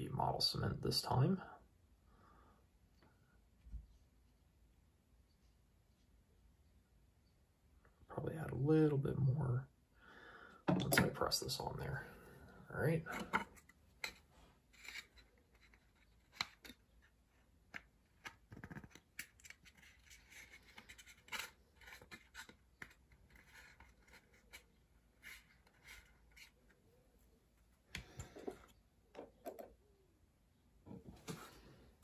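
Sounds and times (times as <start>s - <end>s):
plastic parts clicking and scratching: 13.1s - 26.8s.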